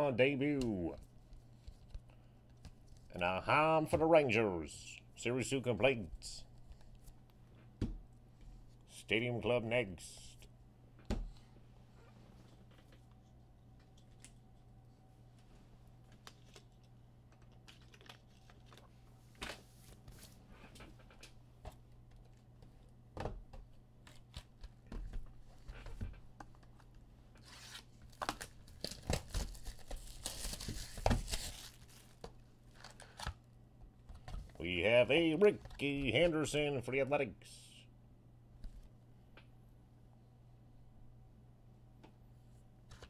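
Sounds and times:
low electrical hum: 0.0 - 43.0
wrapper tearing and crinkling: 27.5 - 32.1.

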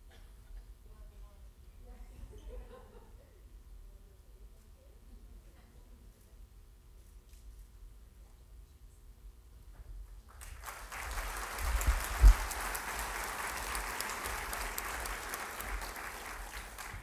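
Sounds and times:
audience applause: 10.4 - 17.0.

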